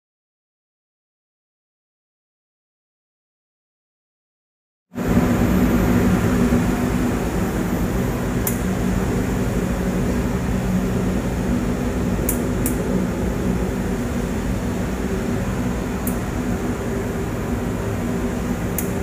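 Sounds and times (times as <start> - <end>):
extraction fan whirring: 5.0 - 19.0.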